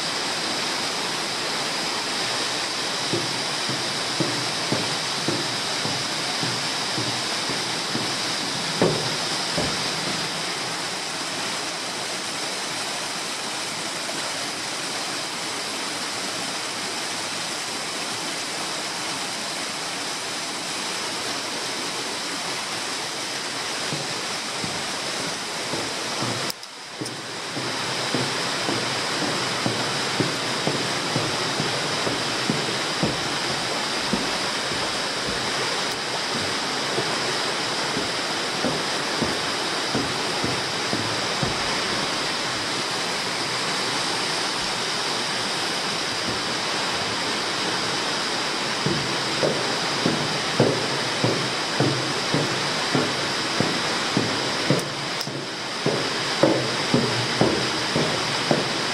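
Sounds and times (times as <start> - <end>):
steady rushing noise: 0.0 - 12.2, 23.1 - 58.9
light knocks: 3.0 - 10.6, 23.9 - 42.7, 48.8 - 58.9.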